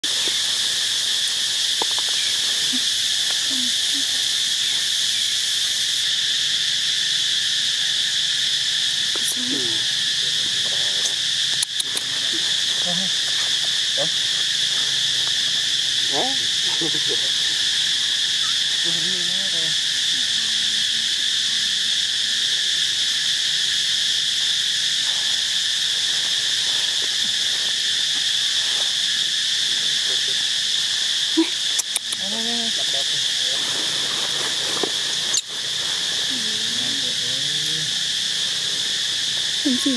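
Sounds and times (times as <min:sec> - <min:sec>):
insects droning: 0:00.0 - 0:39.9
sharp click: 0:31.8 - 0:32.2.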